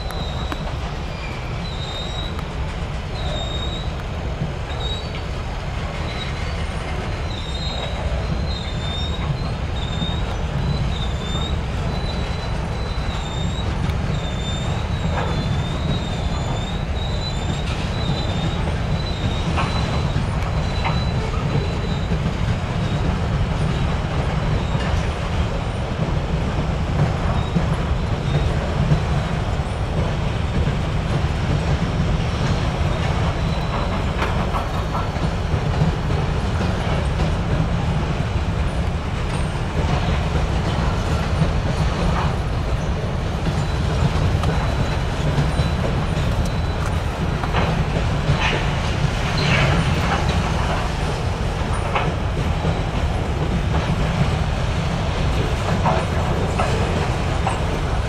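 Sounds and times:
wavering wheel squeal: 0.0s - 2.5s, 3.1s - 4.0s, 4.7s - 5.3s, 5.9s - 25.2s, 32.3s - 35.2s, 38.7s - 50.4s
rail car rumbling on track: 0.0s - 58.0s.

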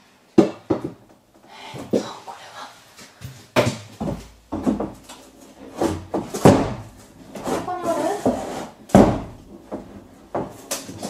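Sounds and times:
wall panels knocking and cracking: 0.4s - 1.2s, 3.3s - 11.0s.

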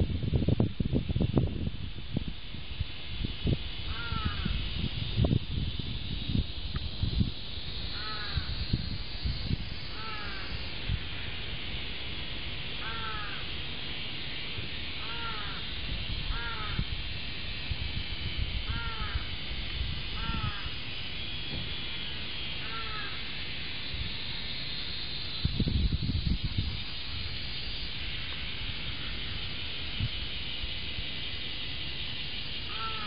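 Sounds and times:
crow cawing: 3.9s - 4.6s, 8.0s - 8.5s, 9.9s - 10.6s, 12.8s - 13.5s, 15.0s - 15.7s, 16.3s - 16.8s, 18.7s - 19.3s, 20.2s - 20.7s, 22.6s - 23.2s, 32.7s - 33.0s.

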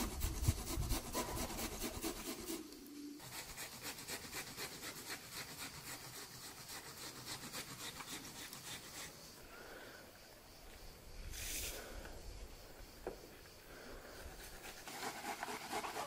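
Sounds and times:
rasping strokes on wood: 0.0s - 9.2s, 14.6s - 16.0s
short hiss: 11.2s - 12.2s.

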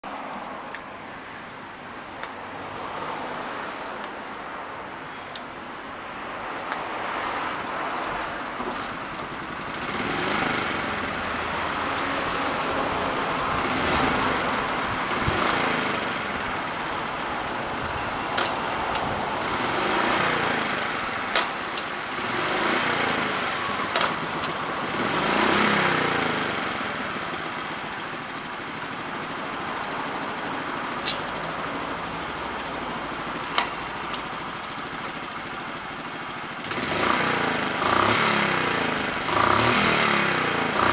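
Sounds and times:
small motorcycle engine revving: 9.0s - 17.8s, 18.4s - 29.3s, 33.6s - 40.9s.

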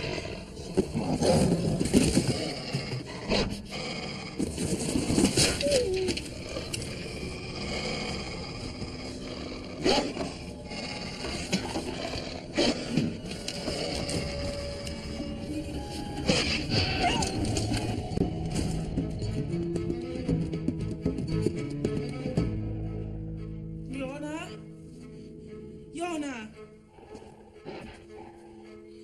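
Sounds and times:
wolf growling and snarling: 0.0s - 18.2s, 26.9s - 29.0s
scraping and knocking objects: 0.5s - 7.4s.

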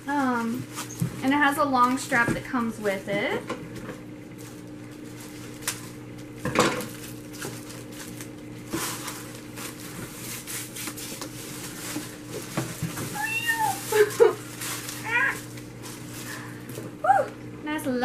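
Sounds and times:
paper wrapping rustling: 6.8s - 16.7s.

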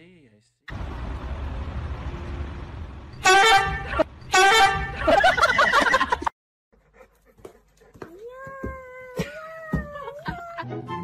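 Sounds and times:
flat-pitched honks: 3.2s - 5.3s.

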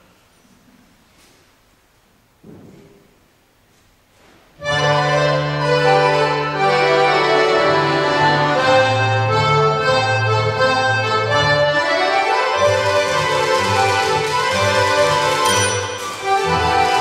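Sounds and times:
accordion orchestra playing: 4.6s - 17.0s.

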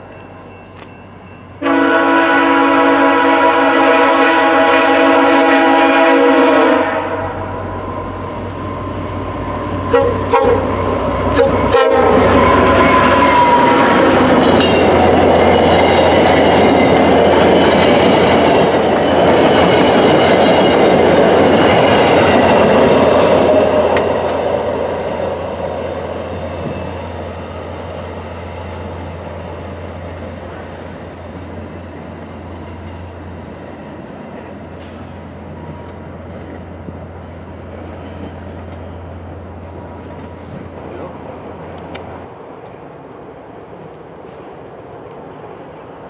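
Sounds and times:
train passing rumble: 0.0s - 46.0s
locomotive horn blast: 1.6s - 7.7s, 9.9s - 14.3s.

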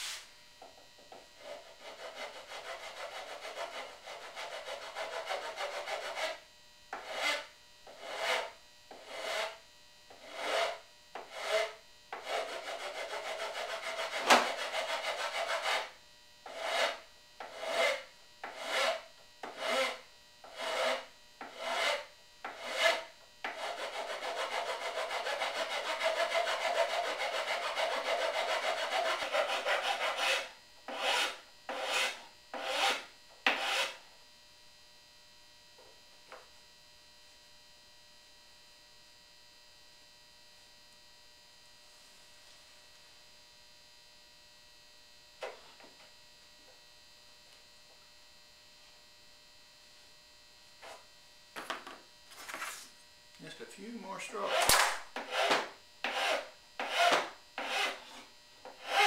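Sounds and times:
hand rasp filing wood: 1.4s - 6.4s, 7.0s - 15.9s, 16.5s - 34.0s, 54.4s - 59.0s.

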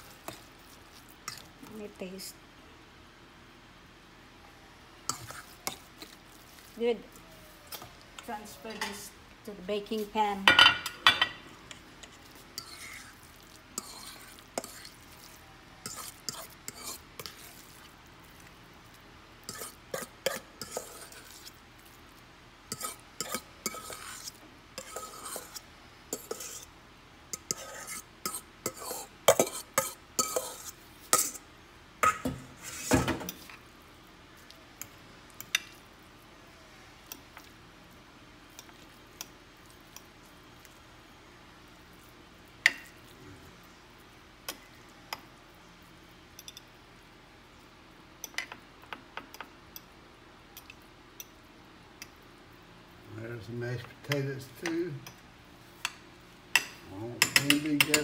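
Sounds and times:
fork scraping metal bowl: 11.7s - 15.2s, 15.8s - 17.6s, 19.4s - 21.6s, 22.7s - 26.7s, 27.4s - 31.4s, 32.0s - 33.6s.

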